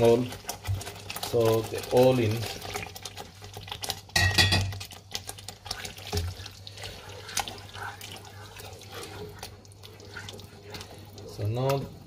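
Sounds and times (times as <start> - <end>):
wet squelching of stirred food: 0.0 - 12.0
spoon knocking and scraping pot: 4.0 - 5.0.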